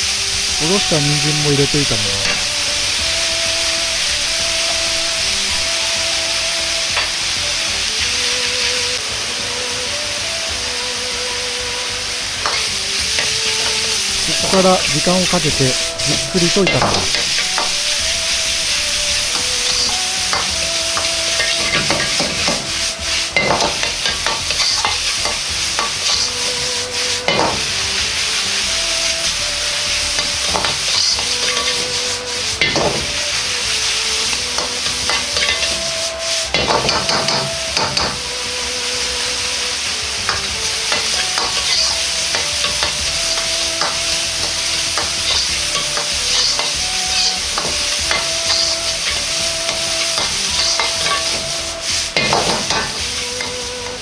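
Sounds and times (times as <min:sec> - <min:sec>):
ladle scraping wok: 0:00.0 - 0:54.0
oil sizzling: 0:00.0 - 0:54.0
ladle clicking on wok: 0:06.8 - 0:08.0, 0:12.2 - 0:14.2, 0:16.7 - 0:27.8, 0:29.8 - 0:38.2, 0:40.3 - 0:54.0.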